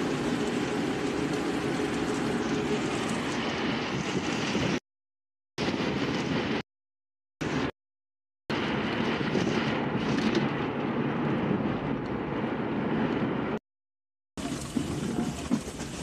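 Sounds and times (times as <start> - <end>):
car cabin road and engine noise: 8.5 - 13.6.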